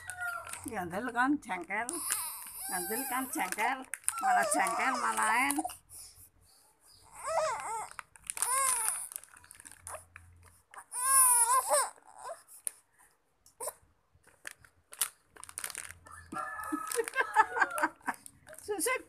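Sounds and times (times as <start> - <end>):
plastic snack packet crackling: 0.0 - 0.8, 1.9 - 5.6, 7.4 - 11.1, 14.3 - 19.0
baby crying: 2.0 - 3.4, 4.1 - 5.7, 7.0 - 9.1, 10.8 - 12.4.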